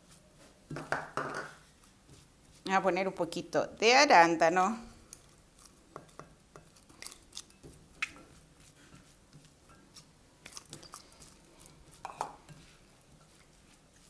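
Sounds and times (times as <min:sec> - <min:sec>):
spatula tapping glass bowl: 0:12.0 - 0:12.4.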